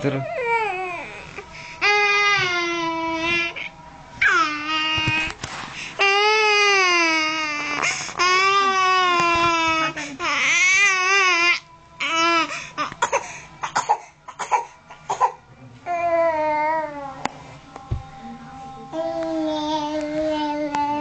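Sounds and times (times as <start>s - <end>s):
baby crying: 0.0s - 5.1s.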